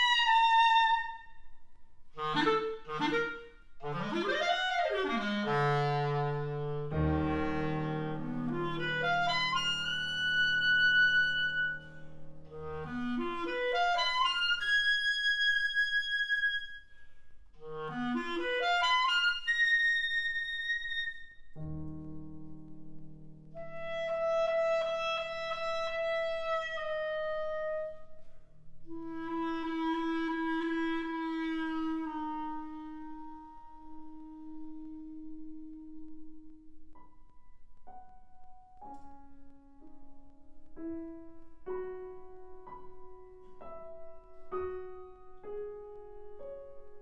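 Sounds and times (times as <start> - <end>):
solo clarinet: 0.0 - 22.0, 23.5 - 37.2.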